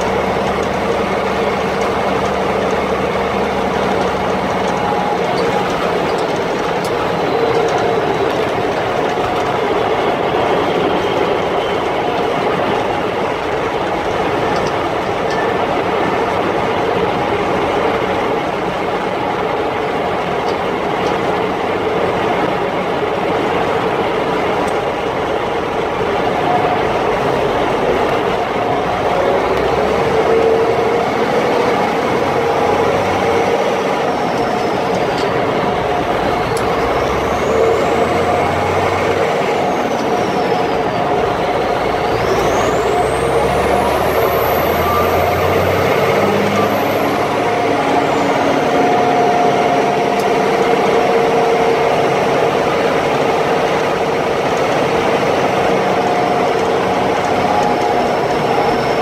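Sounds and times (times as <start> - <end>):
diesel truck engine drone: 0.0 - 59.0
drivetrain and tyre noise: 0.0 - 59.0
faint whine sliding in pitch: 23.3 - 59.0.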